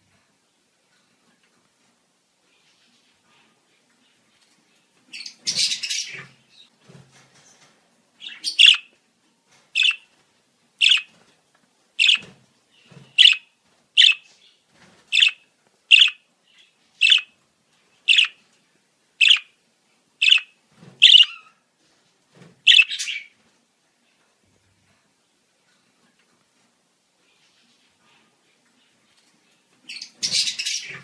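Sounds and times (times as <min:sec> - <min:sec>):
budgerigar chirping: 0:08.2 - 0:08.9, 0:09.8 - 0:10.0, 0:10.8 - 0:11.1, 0:12.0 - 0:12.3, 0:13.1 - 0:14.2, 0:15.1 - 0:16.2, 0:17.0 - 0:17.3, 0:18.1 - 0:18.4, 0:19.2 - 0:19.5, 0:20.2 - 0:21.5, 0:22.7 - 0:23.3.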